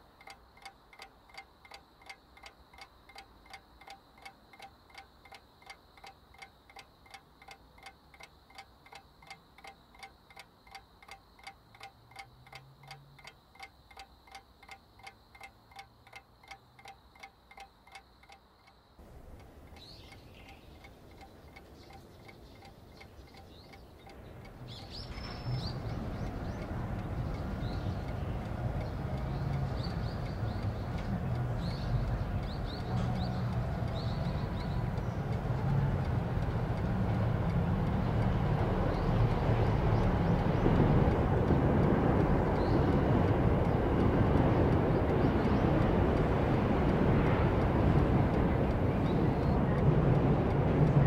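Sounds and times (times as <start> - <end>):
clock ticking: 0.0 - 51.0
rushing noise: 24.1 - 51.0.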